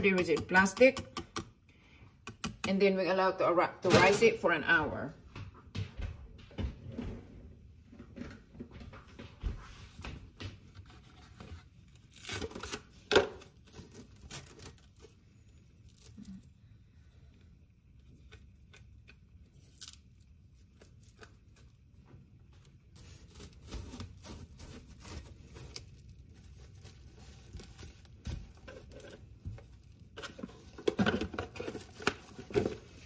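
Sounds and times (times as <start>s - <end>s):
cling wrap crinkling: 18.0s - 33.0s.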